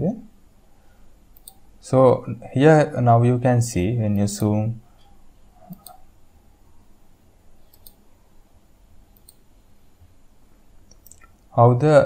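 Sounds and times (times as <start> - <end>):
computer mouse clicks: 1.4 - 1.6, 4.2 - 6.0, 7.7 - 8.0, 9.1 - 9.4, 10.9 - 11.4.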